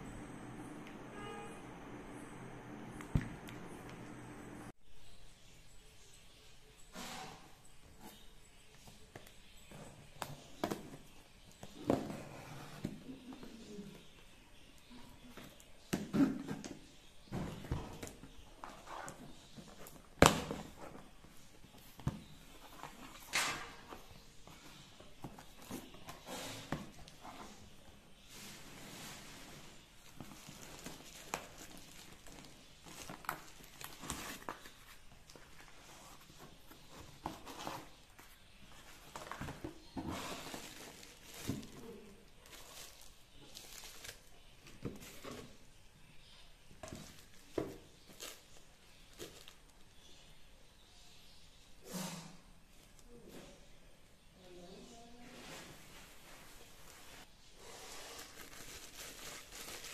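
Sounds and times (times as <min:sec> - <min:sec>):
taps and rustles of paper: 0:30.0 - 0:45.7.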